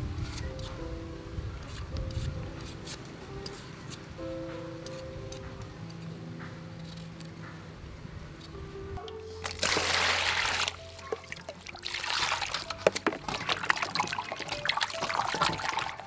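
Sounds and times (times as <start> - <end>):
background music: 0.0 - 16.0
hands splashing in water: 9.4 - 16.0
water pouring into metal basin: 9.4 - 16.0.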